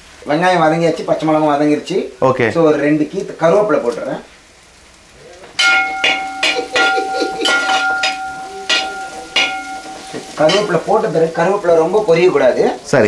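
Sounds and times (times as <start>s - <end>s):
onions frying: 0.0s - 13.0s
spoon knocking ringing metal pot: 5.6s - 10.8s.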